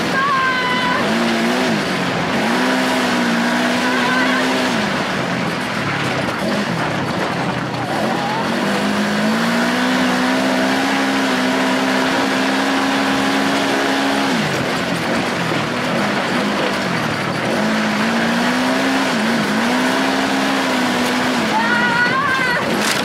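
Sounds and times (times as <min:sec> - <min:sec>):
buggy engine revving: 0:00.0 - 0:23.0
wind and dirt-track noise: 0:00.0 - 0:23.0.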